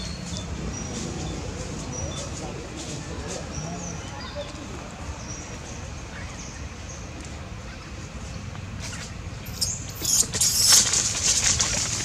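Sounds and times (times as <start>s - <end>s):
baby monkey squealing: 9.5s - 10.9s.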